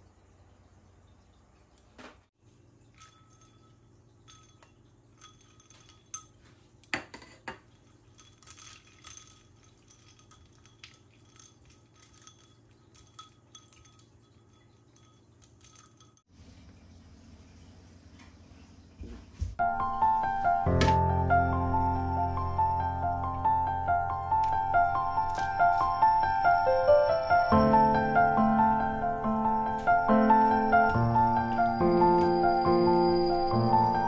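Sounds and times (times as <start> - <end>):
ice cubes clinking against glass: 2.9 - 6.4, 7.1 - 16.3.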